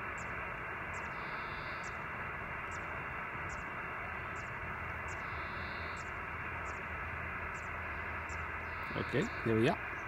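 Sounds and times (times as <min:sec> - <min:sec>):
radio receiver hiss: 0:00.0 - 0:06.1.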